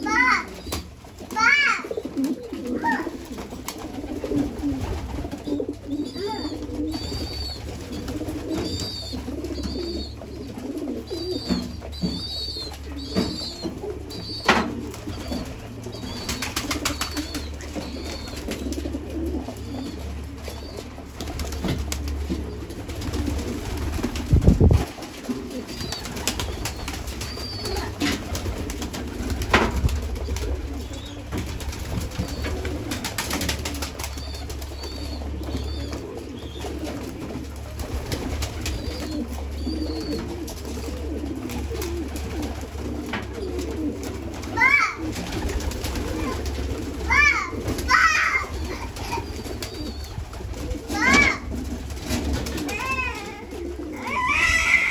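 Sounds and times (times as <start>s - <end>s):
pigeons cooing: 0.0s - 54.9s
wing flaps: 14.7s - 54.6s.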